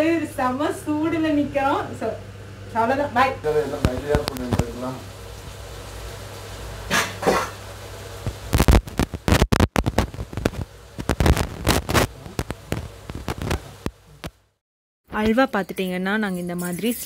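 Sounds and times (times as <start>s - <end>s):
low steady hum: 0.0s - 14.4s
sharp cracks and clicks: 3.8s - 4.7s, 8.3s - 14.4s.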